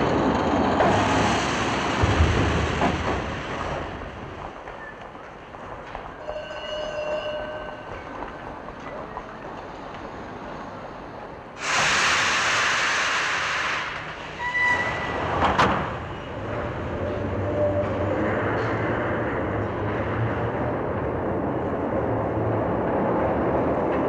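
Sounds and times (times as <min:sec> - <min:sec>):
train hum and rumble: 0:00.0 - 0:24.0
loud hiss of air: 0:11.6 - 0:14.4.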